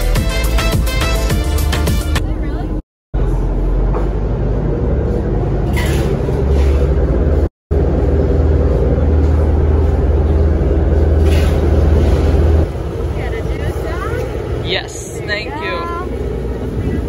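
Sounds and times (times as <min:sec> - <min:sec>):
water rushing past boat: 0:07.2 - 0:17.0
wind buffeting microphone: 0:07.2 - 0:17.0.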